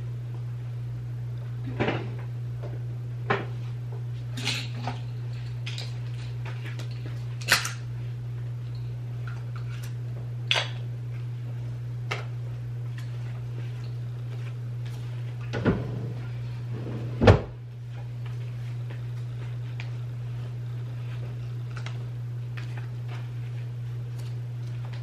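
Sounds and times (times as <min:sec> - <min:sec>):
low hum: 0:12.5 - 0:25.0.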